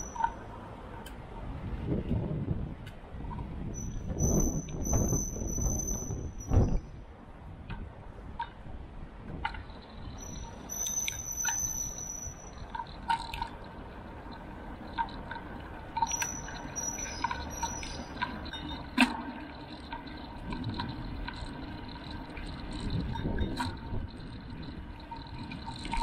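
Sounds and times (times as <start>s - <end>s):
high squeal-like tone: 0.0s - 0.5s, 3.7s - 7.0s, 10.1s - 13.0s, 16.0s - 18.9s
bicycle riding rumble: 0.0s - 26.0s
clicks and knocks from bike: 7.6s - 8.6s, 9.2s - 11.7s, 12.5s - 26.0s.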